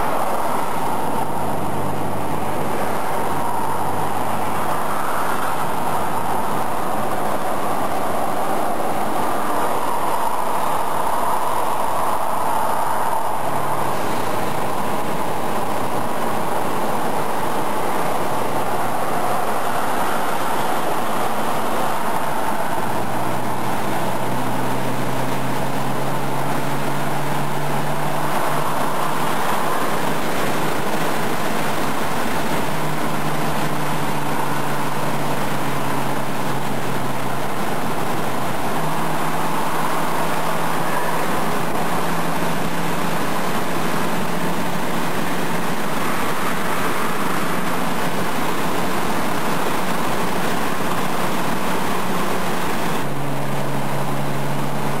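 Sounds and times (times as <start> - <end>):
car road and engine noise: 0.0 - 55.0.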